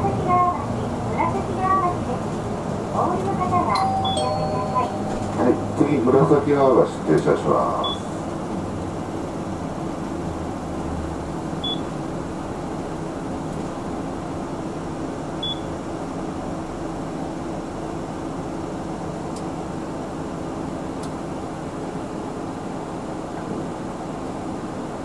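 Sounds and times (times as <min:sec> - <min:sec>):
bus engine hum and road noise: 0:00.0 - 0:25.0
short high beeps: 0:03.8 - 0:05.8.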